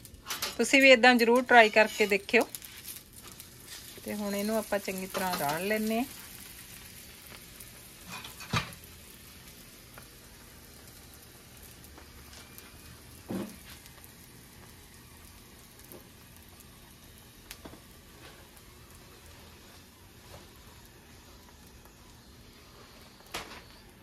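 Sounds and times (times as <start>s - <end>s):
flatbread sizzling on a griddle: 0.0s - 24.0s.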